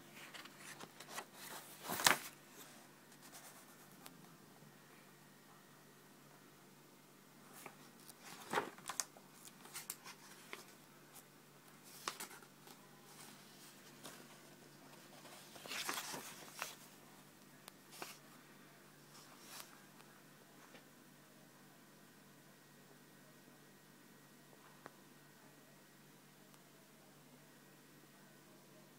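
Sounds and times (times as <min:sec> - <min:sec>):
faint steady hum: 0:00.0 - 0:28.9
book pages turning: 0:00.2 - 0:04.1, 0:07.5 - 0:17.0, 0:17.9 - 0:18.2.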